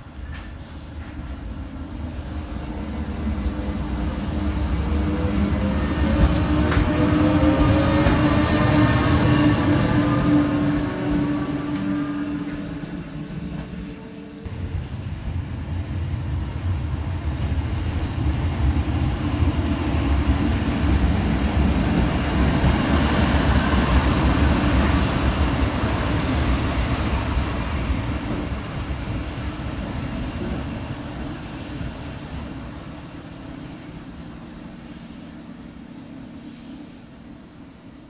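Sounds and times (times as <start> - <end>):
locomotive wheels rumbling on rail: 0.0 - 38.0.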